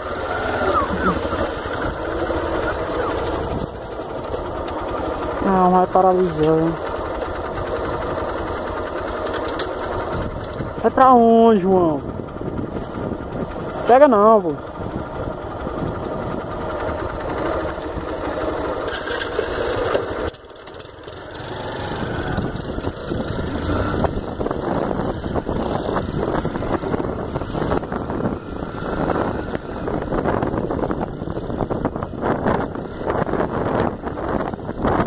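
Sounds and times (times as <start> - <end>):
wind noise on microphone: 0.0 - 4.3, 10.0 - 13.9, 14.5 - 18.1, 21.8 - 35.0
motorcycle engine running: 0.0 - 35.0.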